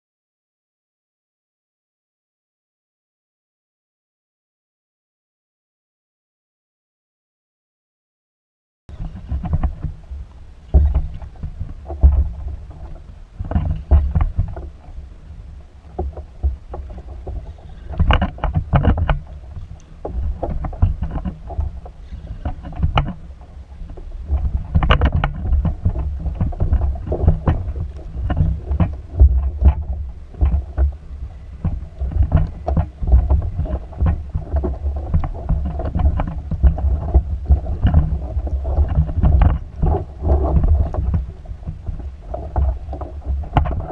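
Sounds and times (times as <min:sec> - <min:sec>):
water slapping against kayak hull: 0:08.9 - 0:43.9
wind rumbling on microphone: 0:08.9 - 0:43.9.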